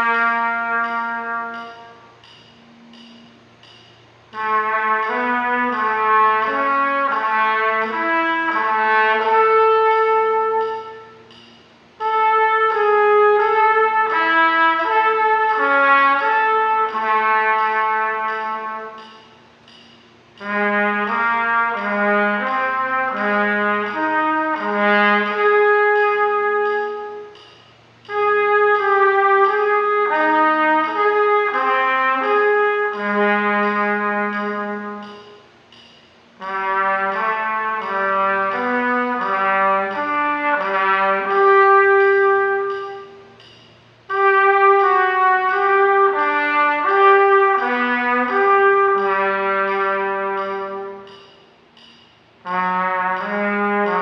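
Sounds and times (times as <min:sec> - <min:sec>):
solo trumpet arpeggios: 0:00.0 - 0:02.3, 0:04.2 - 0:19.3, 0:20.4 - 0:35.5, 0:36.3 - 0:51.4, 0:52.4 - 0:54.0.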